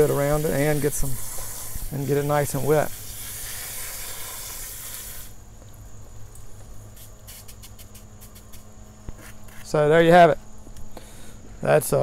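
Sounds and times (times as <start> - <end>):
hose nozzle spraying water: 0.0 - 5.4, 7.0 - 8.7.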